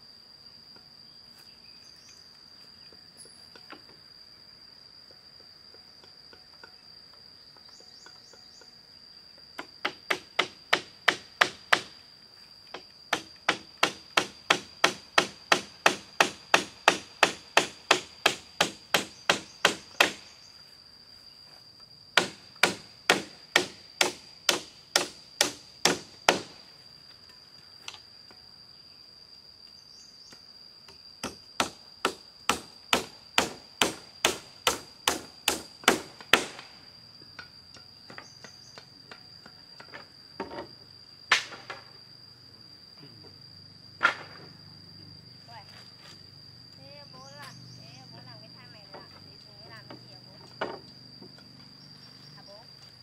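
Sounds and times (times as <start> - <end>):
insect droning: 0.0 - 53.0
hammer blows on bamboo: 9.6 - 12.0, 12.7 - 20.4, 22.2 - 26.6, 31.2 - 36.8.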